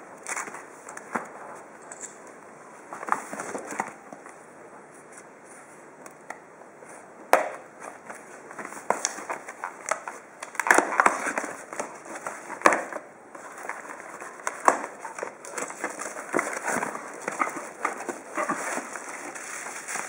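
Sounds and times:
tape and cardboard crackling: 0:00.2 - 0:02.0, 0:07.3 - 0:20.0.

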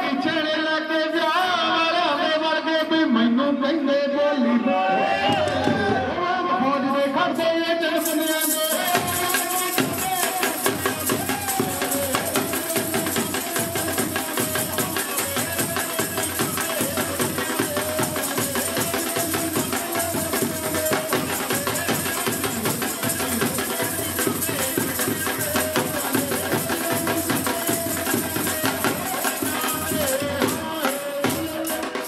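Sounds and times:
man singing through microphone: 0:00.0 - 0:32.0
dhol drum: 0:05.2 - 0:06.1, 0:08.0 - 0:32.0
chimta tongs jingling: 0:08.0 - 0:16.8.

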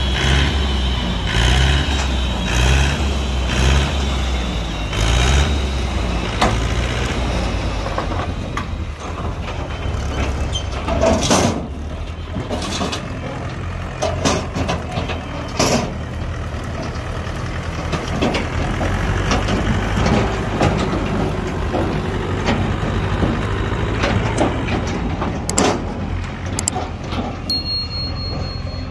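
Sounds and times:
tractor diesel engine running: 0:00.0 - 0:28.9
sharp knocks and clatters: 0:07.9 - 0:16.0, 0:17.6 - 0:27.5.

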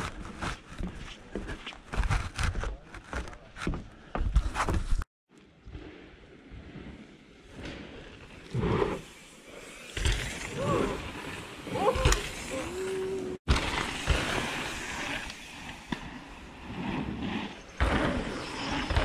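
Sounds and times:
bike tyres rolling on dirt: 0:05.9 - 0:19.0
person calling out: 0:11.7 - 0:13.4.

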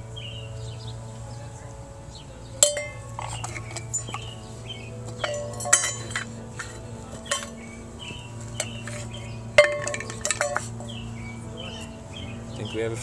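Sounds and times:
metal bowl clanking: 0:02.6 - 0:12.0.

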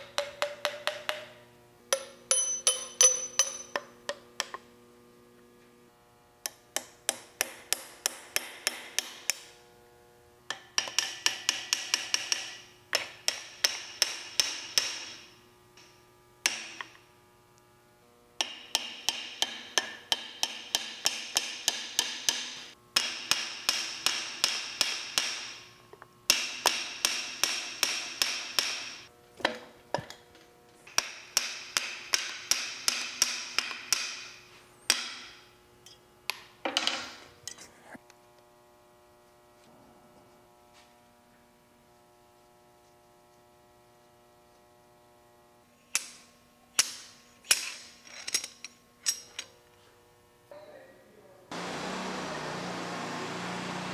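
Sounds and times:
high metallic ringing: 0:01.9 - 0:03.9.

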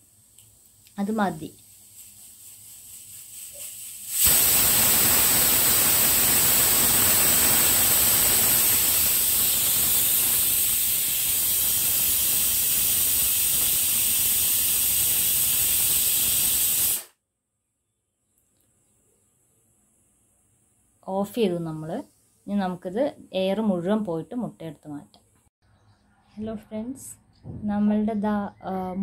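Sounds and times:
pressure cooker whistling: 0:03.5 - 0:17.1.

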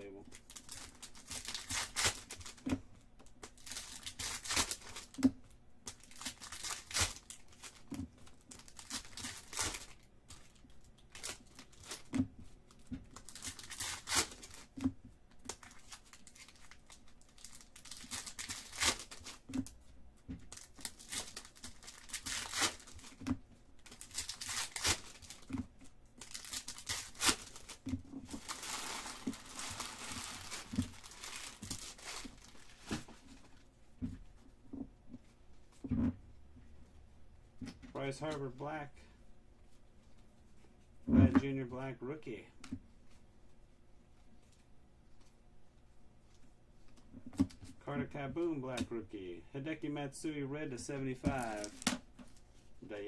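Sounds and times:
foil wrappers tearing and crinkling: 0:00.3 - 0:02.7, 0:03.4 - 0:05.2, 0:05.9 - 0:12.1, 0:12.7 - 0:14.8, 0:15.4 - 0:19.5, 0:20.5 - 0:23.2, 0:23.8 - 0:25.6, 0:26.2 - 0:33.2, 0:51.2 - 0:52.0
cards being handled: 0:51.2 - 0:53.0.

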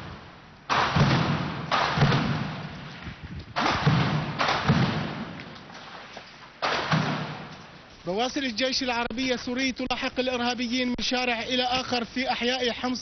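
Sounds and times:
gunshots echoing: 0:00.0 - 0:03.0, 0:03.6 - 0:05.7, 0:06.6 - 0:07.8.

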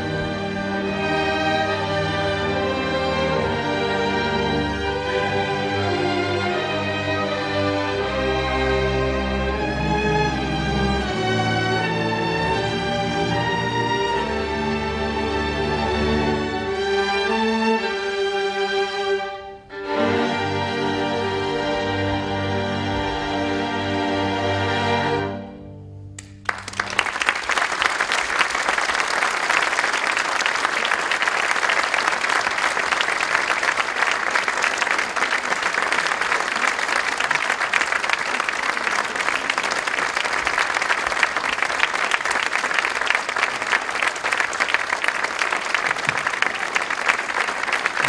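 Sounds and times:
audience applauding: 0:26.2 - 0:48.0.

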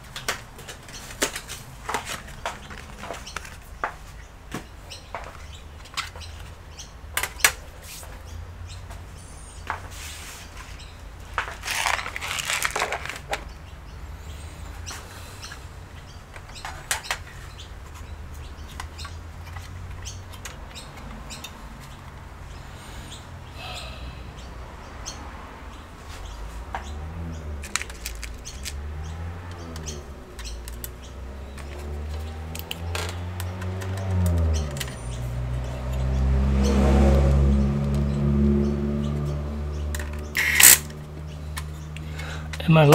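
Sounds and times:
hard-drive caddy clicks and rattles: 0:11.4 - 0:13.4, 0:27.6 - 0:28.8, 0:40.0 - 0:41.0
electric screwdriver whirring: 0:40.4 - 0:40.9.

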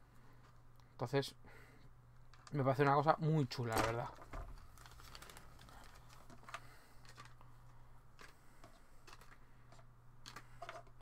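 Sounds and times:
plastic bags rustling: 0:03.5 - 0:11.0.

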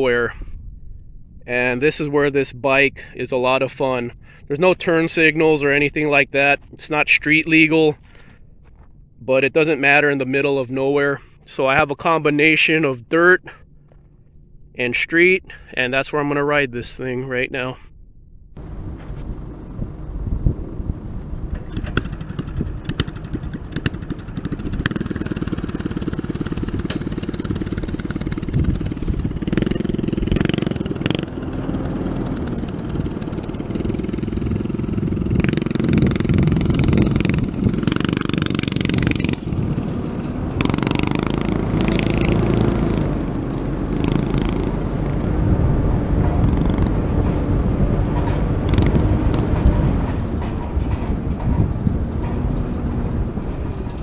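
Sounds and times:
wind rushing over microphone: 0:00.0 - 0:09.2, 0:17.9 - 0:54.0
vehicle engine revving: 0:18.6 - 0:54.0.

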